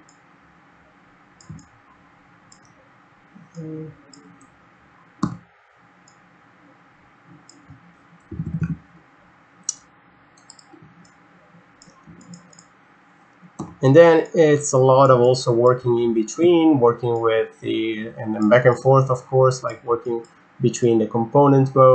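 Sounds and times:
computer mouse clicks: 1.4s - 1.7s, 2.5s - 2.8s, 9.7s - 11.2s, 11.8s - 12.7s.

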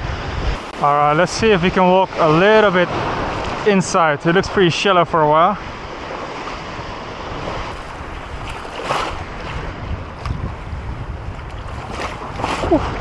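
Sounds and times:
wind rumbling on microphone: 0.0s - 4.7s, 5.6s - 13.0s
water splashing from wading: 7.2s - 13.0s.

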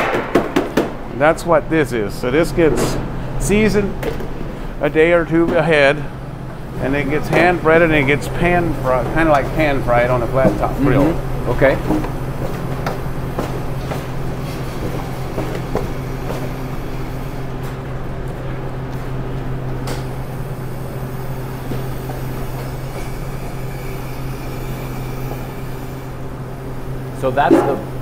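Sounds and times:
kitchen equipment hum: 0.0s - 28.0s
fryer venting steam hiss: 13.1s - 17.8s, 20.0s - 28.0s.

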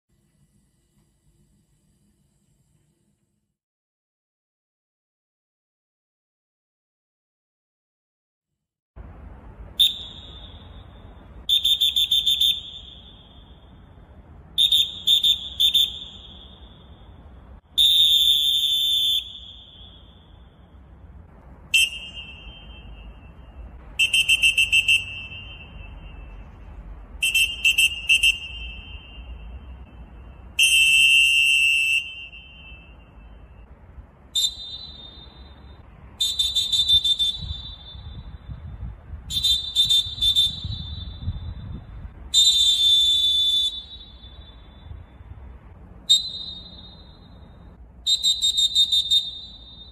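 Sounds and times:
referee whistle blasts: 9.8s - 13.8s, 14.6s - 17.1s, 17.8s - 20.6s, 21.7s - 26.5s, 27.2s - 33.7s, 34.3s - 38.6s, 39.2s - 45.1s, 46.0s - 49.9s.

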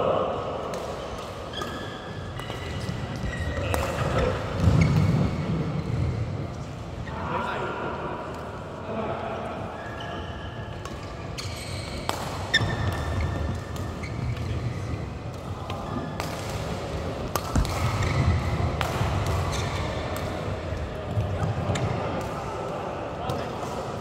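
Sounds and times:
rackets striking shuttlecock: 0.6s - 5.3s, 10.7s - 24.0s
shoe squeak on court: 1.5s - 5.1s, 11.3s - 15.0s.

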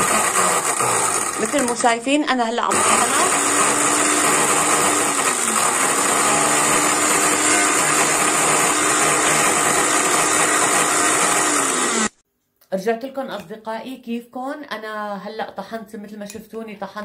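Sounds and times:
electric blender grinding: 0.0s - 2.0s, 2.7s - 12.2s.

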